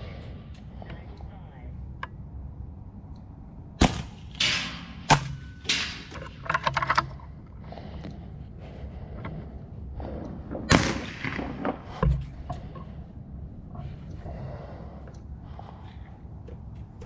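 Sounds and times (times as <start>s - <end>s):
air rifle shot crack: 3.8s - 6.4s, 10.6s - 12.0s.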